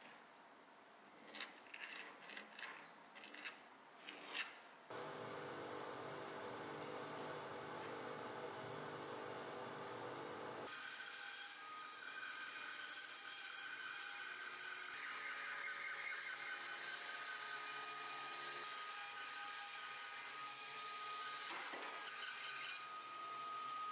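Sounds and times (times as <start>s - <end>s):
low steady hum: 4.9s - 10.7s.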